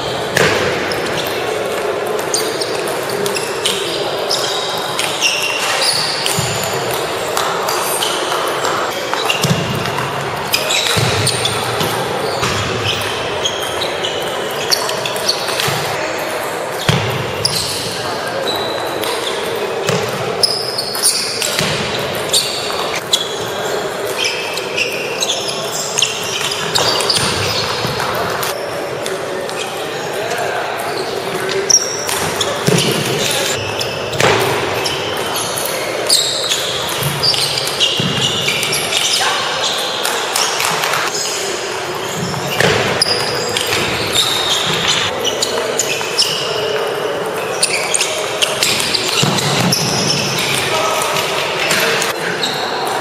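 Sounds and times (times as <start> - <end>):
murmur of voices: 0.0 - 53.0
short high squeaks: 22.2 - 28.6, 41.1 - 46.7.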